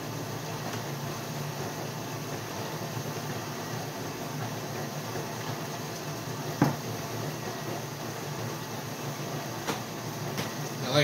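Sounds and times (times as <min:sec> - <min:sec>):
dishwasher humming: 0:00.0 - 0:11.0
glass set down on wooden table: 0:06.6 - 0:06.8.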